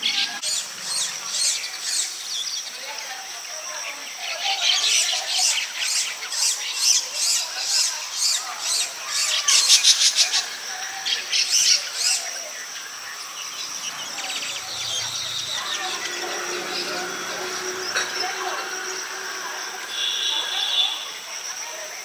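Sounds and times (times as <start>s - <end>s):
weaver birds chirping: 0.0s - 22.0s.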